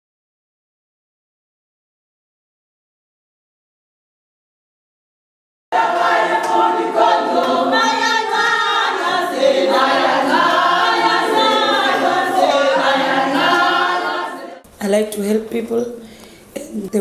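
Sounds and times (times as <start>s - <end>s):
women singing unaccompanied: 5.8s - 14.6s.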